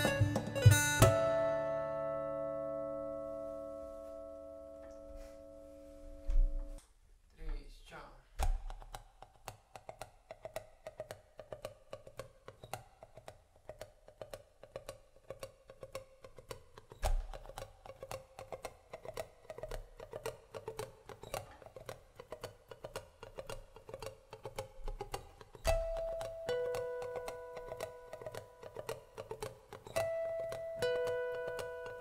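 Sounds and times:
acoustic guitar muted picking: 0.0s - 6.8s, 14.8s - 32.0s.

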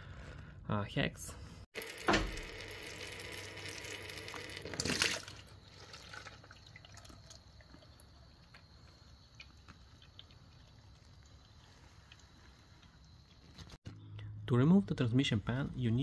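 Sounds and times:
fluid draining into plastic bucket: 1.8s - 7.9s.

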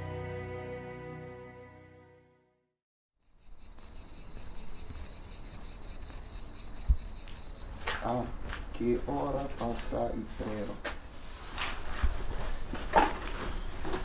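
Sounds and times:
soft sad music: 0.0s - 2.7s
insect chirring: 3.2s - 8.8s.

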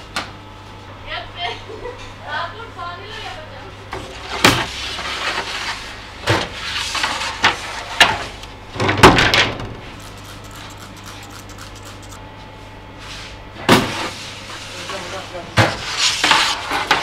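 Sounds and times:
steady low hum: 0.0s - 16.9s.

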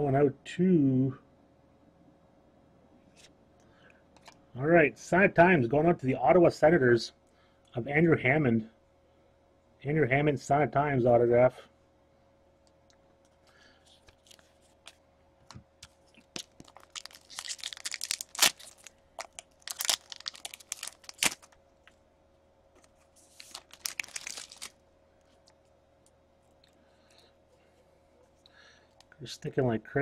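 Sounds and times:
foil wrapper crinkling and tearing: 13.9s - 15.0s, 15.8s - 21.6s, 22.9s - 24.8s.

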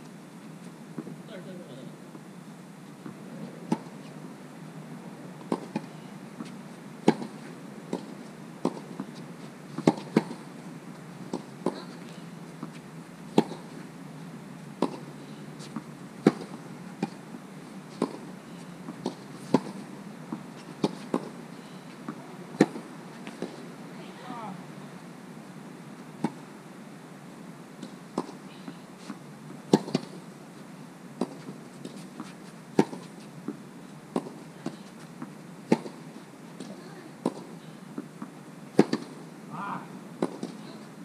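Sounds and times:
tennis ball bouncing on court: 5.4s - 7.3s, 7.9s - 9.1s, 9.8s - 10.4s, 12.6s - 13.6s, 14.8s - 17.2s, 20.8s - 21.3s, 22.1s - 24.6s, 29.0s - 30.2s, 31.2s - 33.1s, 34.1s - 36.0s, 36.6s - 39.2s, 40.2s - 40.6s
tennis racquet striking ball: 38.8s - 39.2s, 40.2s - 40.6s.

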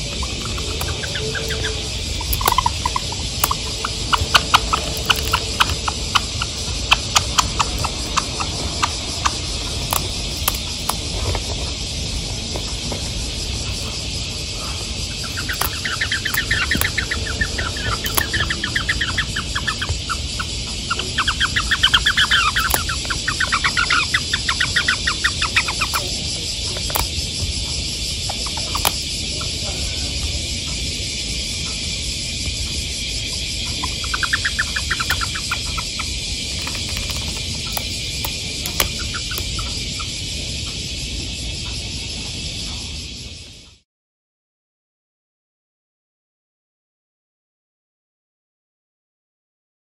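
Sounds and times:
bird chattering song: 0.0s - 30.9s, 33.0s - 40.2s
cicadas droning: 0.0s - 43.8s
beak pecking on plastic: 0.1s - 13.0s, 14.6s - 19.0s, 21.4s - 29.1s, 34.0s - 39.7s.

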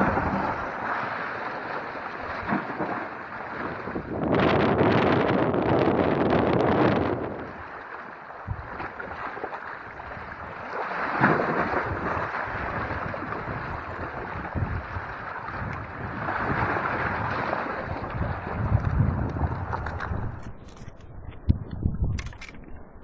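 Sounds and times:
waves lapping against rocks: 0.0s - 21.0s
wind buffeting microphone: 2.3s - 7.8s, 8.4s - 9.2s, 11.2s - 23.0s.

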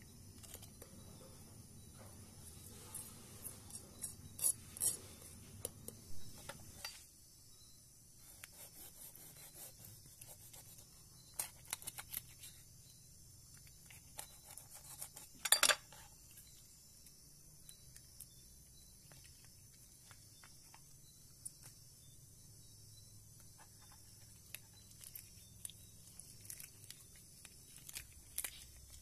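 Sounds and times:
knife scraping fish scales: 4.4s - 5.3s, 8.2s - 12.5s, 13.8s - 16.1s.

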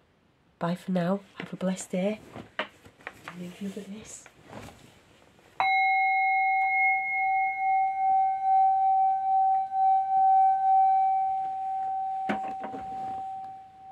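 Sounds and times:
metal singing bowl ringing: 5.6s - 13.9s.

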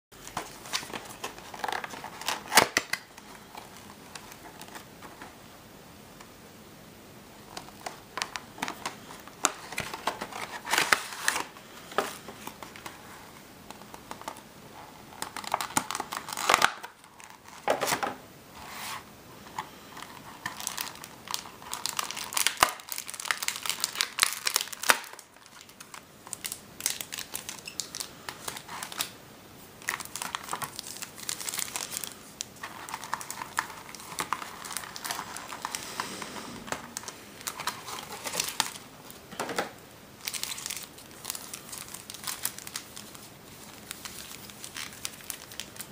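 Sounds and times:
plastic packaging crinkling: 0.2s - 5.2s, 7.5s - 13.0s, 15.1s - 18.0s, 19.9s - 29.1s, 29.8s - 35.8s, 36.8s - 39.2s, 40.2s - 45.9s.

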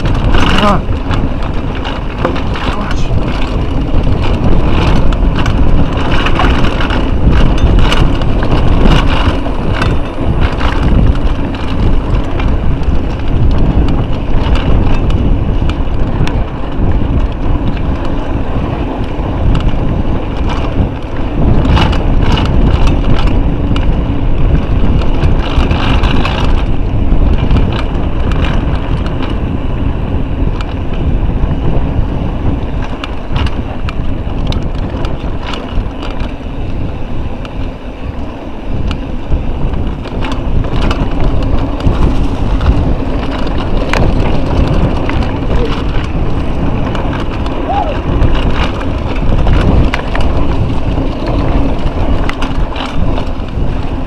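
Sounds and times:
bike rattling and knocking: 0.0s - 54.0s
wind buffeting microphone: 0.0s - 54.0s.

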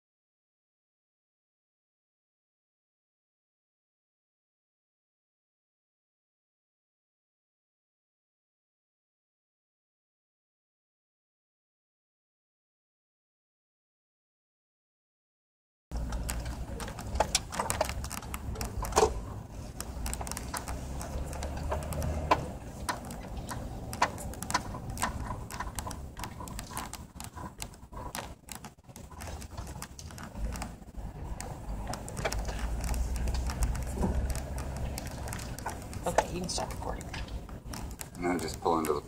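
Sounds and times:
clicks and knocks: 15.9s - 39.0s
vehicle rumble from inside cabin: 15.9s - 39.0s.

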